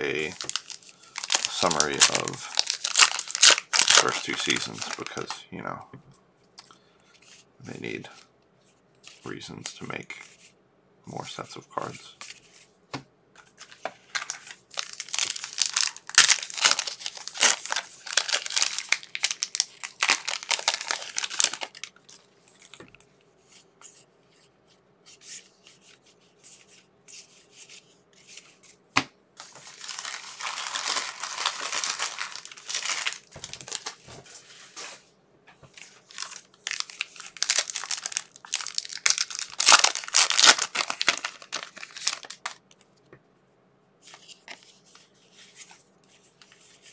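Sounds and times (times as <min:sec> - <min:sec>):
wrappers tearing and crinkling: 0:00.1 - 0:05.4, 0:13.6 - 0:22.8, 0:29.4 - 0:34.0, 0:35.8 - 0:42.6.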